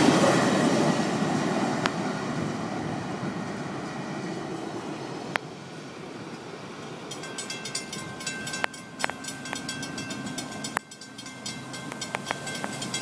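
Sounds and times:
railroad crossing bell ringing: 7.0 - 13.0.

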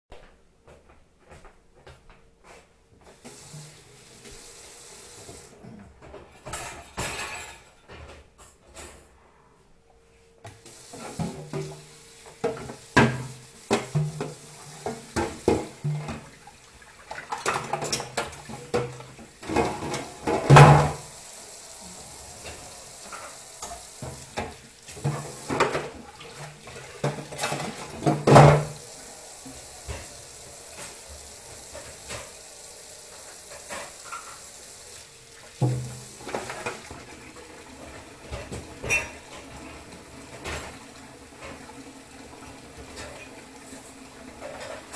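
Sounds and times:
tap water running: 3.1 - 7.4, 10.5 - 44.9
dishes clattering: 6.0 - 9.0, 17.0 - 21.3, 22.0 - 34.5, 35.5 - 41.9.

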